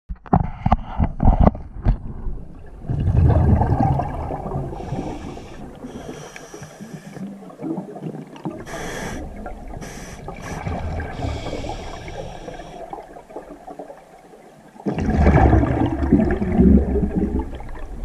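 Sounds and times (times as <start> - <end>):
diver exhaling bubbles: 2.8 - 13.2, 14.8 - 18.0
hissing breaths: 4.8 - 7.4, 8.6 - 13.0.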